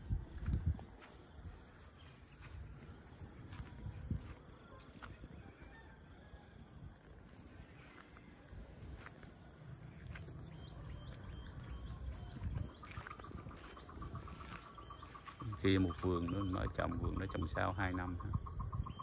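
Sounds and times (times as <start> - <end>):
wind buffeting microphone: 0.0 - 1.7, 2.5 - 4.6, 10.3 - 19.0
high-pitched insect drone: 6.6 - 19.0.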